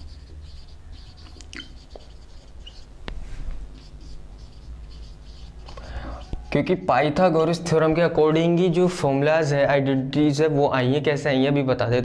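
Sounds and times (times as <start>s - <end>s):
marker pen on whiteboard: 0.0s - 6.9s
low steady hum: 0.0s - 10.3s.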